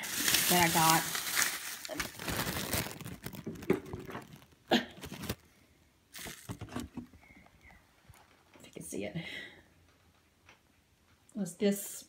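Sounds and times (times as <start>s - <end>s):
packaging crinkling and rustling: 0.0s - 5.5s, 6.1s - 7.1s.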